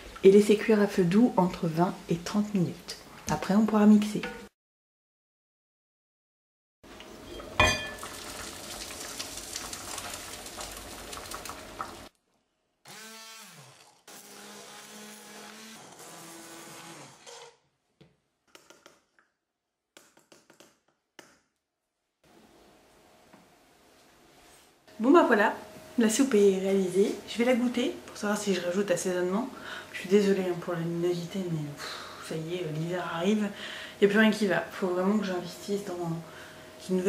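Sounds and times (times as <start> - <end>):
immersion blender motor: 12.8 - 17.6.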